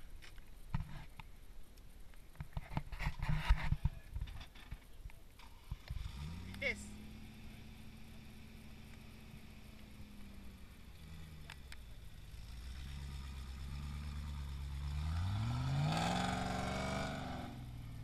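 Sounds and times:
car engine revving on climb: 5.4 - 18.0.

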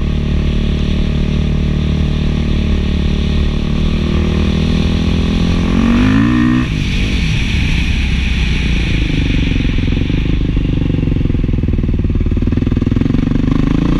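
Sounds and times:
motorcycle engine revving: 0.0 - 13.9.

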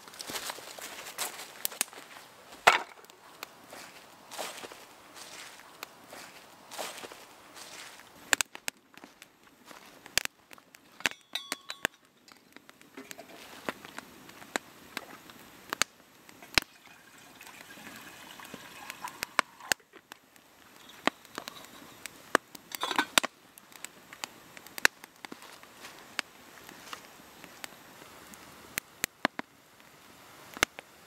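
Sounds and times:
wood fire crackling: 0.0 - 31.0
water poured into metal kettle: 16.6 - 19.8.

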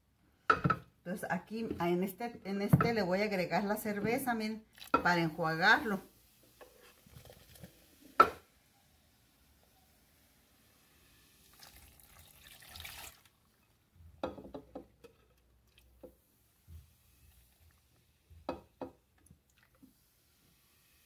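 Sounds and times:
beer fizzing pour: 4.7 - 5.1, 6.2 - 8.4, 10.6 - 13.8, 15.5 - 18.2, 19.2 - 20.8.

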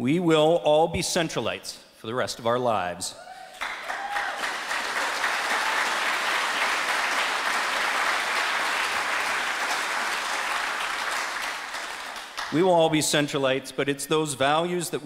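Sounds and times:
audience applauding: 3.5 - 12.6.

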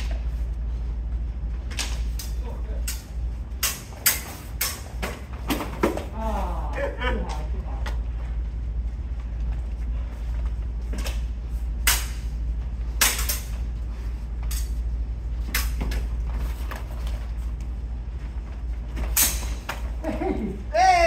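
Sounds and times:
low hum: 0.0 - 21.0
steel swords clashing: 19.2 - 19.6.

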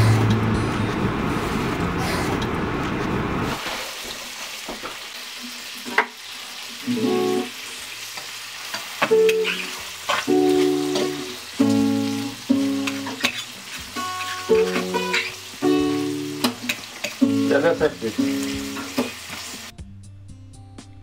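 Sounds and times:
acoustic guitar picking: 0.0 - 2.5, 9.1 - 19.2
car driving on wet road: 0.0 - 3.5.

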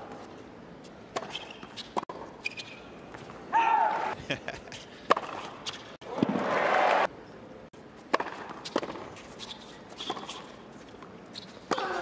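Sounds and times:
crowd cheering and applause: 6.1 - 7.1.

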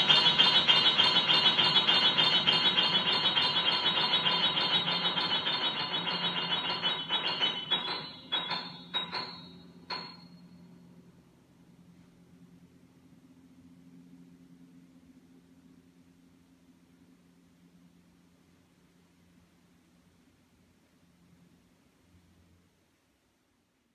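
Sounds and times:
grand piano repeated chords: 0.0 - 10.5.

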